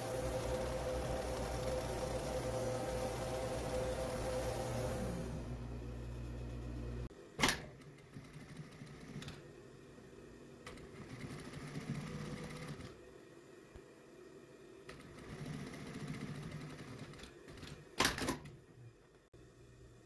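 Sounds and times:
sewing machine stitching: 0:00.0 - 0:05.8, 0:07.4 - 0:09.4, 0:10.6 - 0:13.0, 0:14.9 - 0:18.6
sewing machine motor humming: 0:00.0 - 0:07.1, 0:10.6 - 0:13.0.

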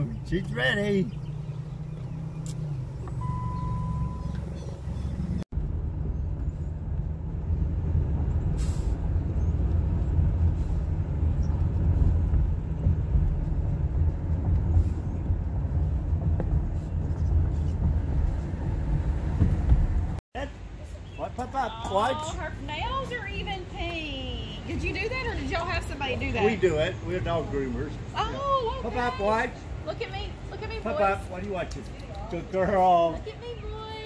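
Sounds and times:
road noise: 0:00.0 - 0:34.0
wind buffeting: 0:01.0 - 0:20.2.

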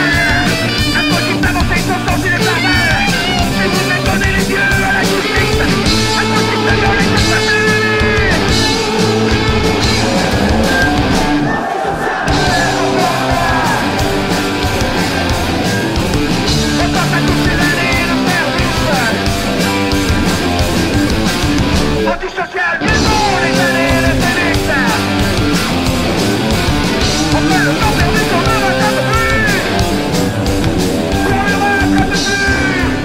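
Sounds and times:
loud guitar rock music: 0:00.0 - 0:33.0.

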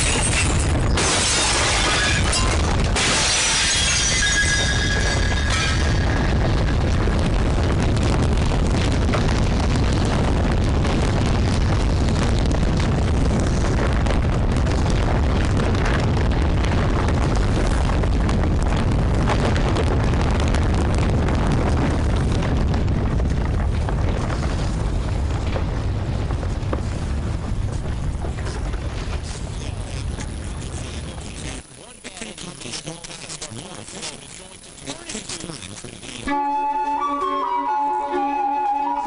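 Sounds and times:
fine crackles: 0:06.0 - 0:36.4.

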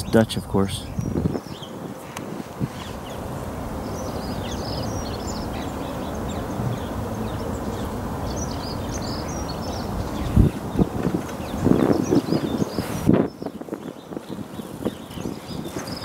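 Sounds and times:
low outdoor rumble: 0:00.0 - 0:16.0
songbirds chirping: 0:00.0 - 0:16.0.

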